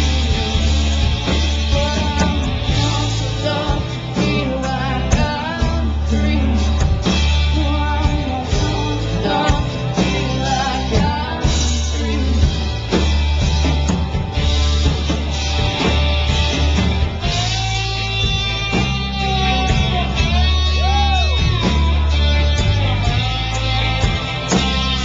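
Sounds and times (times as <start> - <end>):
live rock band playing: 0.0 - 25.0.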